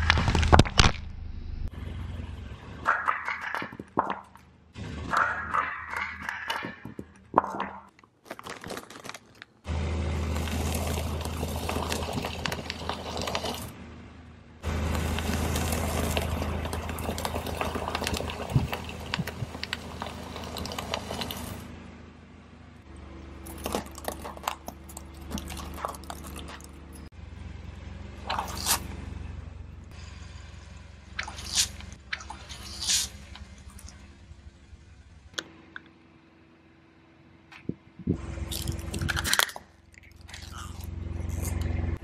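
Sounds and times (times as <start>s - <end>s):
car hum: 0.0s - 42.0s
tyre crushing objects: 5.1s - 9.6s, 10.2s - 13.7s, 14.6s - 21.6s, 23.4s - 26.8s
cheese puffs crunching under tyre: 7.4s - 13.8s, 14.6s - 21.7s, 23.4s - 27.1s, 28.2s - 29.0s, 31.2s - 34.0s, 38.5s - 42.0s.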